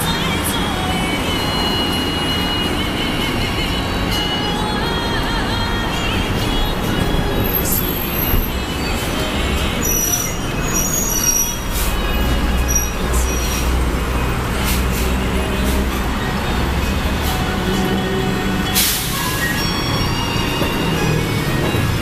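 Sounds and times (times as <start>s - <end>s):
heavy vehicles rumbling: 0.0s - 22.0s
short high-pitched squeals: 7.6s - 13.8s.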